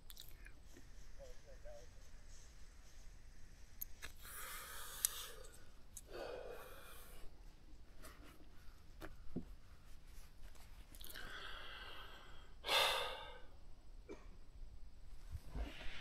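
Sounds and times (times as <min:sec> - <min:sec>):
man breathing: 0:00.5 - 0:08.5, 0:11.0 - 0:13.6.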